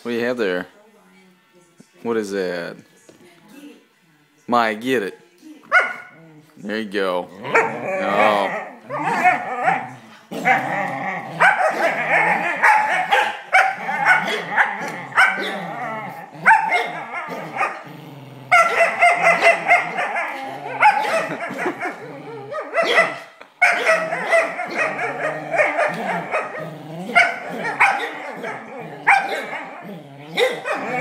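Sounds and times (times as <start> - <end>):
dog whining and growling: 7.3 - 12.7, 13.8 - 23.1, 23.8 - 31.0
dog barking and yipping: 7.5 - 9.9, 11.4 - 15.6, 16.4 - 17.8, 18.5 - 31.0.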